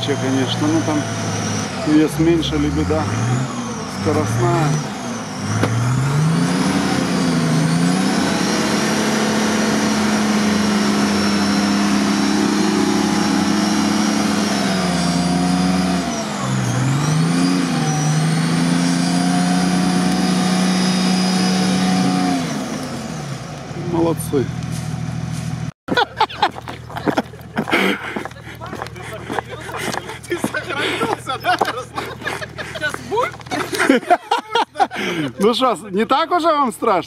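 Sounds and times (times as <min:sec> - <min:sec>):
off-road engine revving: 0:00.0 - 0:37.0.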